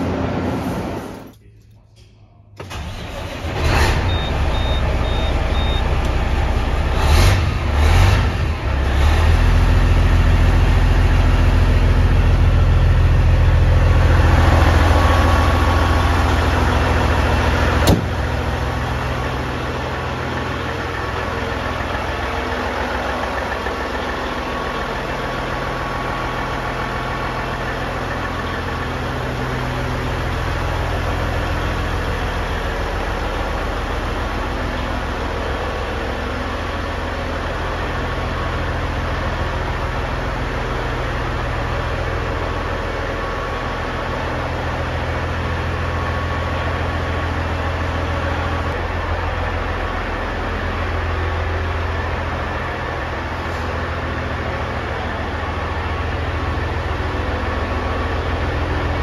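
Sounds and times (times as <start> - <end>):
diesel truck engine starting: 0.0 - 59.0
short high beeps: 4.1 - 6.0.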